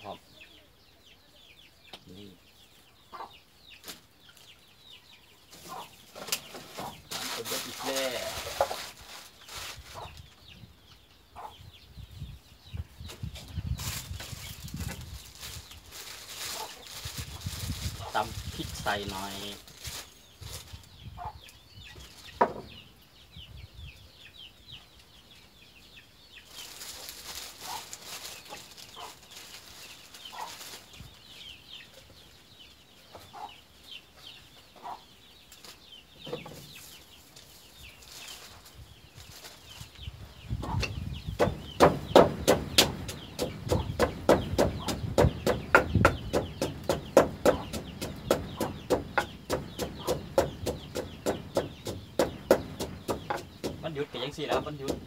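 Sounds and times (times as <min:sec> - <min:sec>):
chickens clucking: 0:00.0 - 0:55.0
pestle pounding in a mortar: 0:41.4 - 0:53.8, 0:54.5 - 0:55.0
sharp knock: 0:41.4 - 0:53.9.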